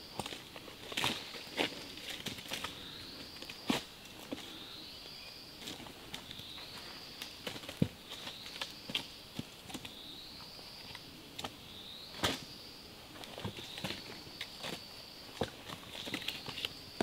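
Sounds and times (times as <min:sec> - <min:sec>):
high insect drone: 0:00.0 - 0:17.0
firewood knocking and crackling: 0:05.7 - 0:09.9.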